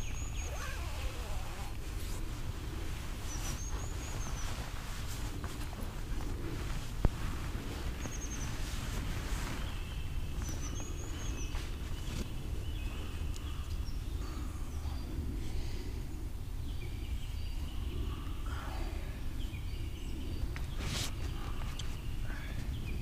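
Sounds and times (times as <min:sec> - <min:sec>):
birds chirping and whistling: 0:00.0 - 0:05.8, 0:06.6 - 0:23.0
hammock rustling: 0:00.0 - 0:15.4, 0:20.0 - 0:22.8.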